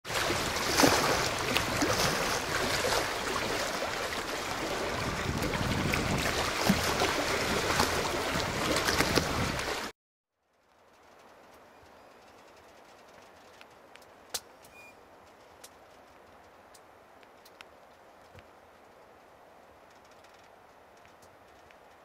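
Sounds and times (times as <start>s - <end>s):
water lapping and splashing: 0.0s - 9.9s.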